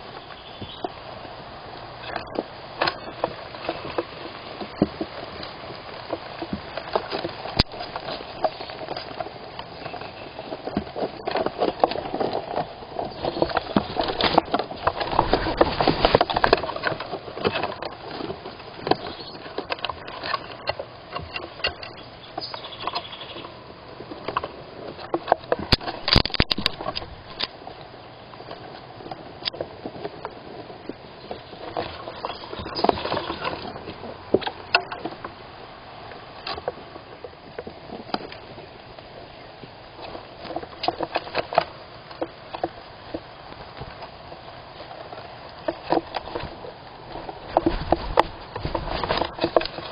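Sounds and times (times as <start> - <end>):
claws scraping on wood: 2.1 - 23.6, 44.8 - 49.9
animal rustling in box: 9.8 - 20.6.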